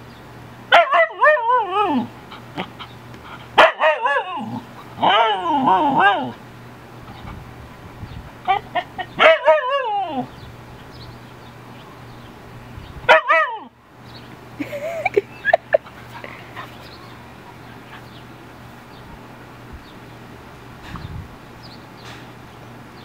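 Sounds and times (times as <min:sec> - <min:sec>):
husky yowling: 0:00.7 - 0:02.1, 0:03.6 - 0:06.4, 0:08.5 - 0:10.3, 0:13.1 - 0:13.7
dog yipping: 0:08.5 - 0:10.3, 0:13.1 - 0:13.7.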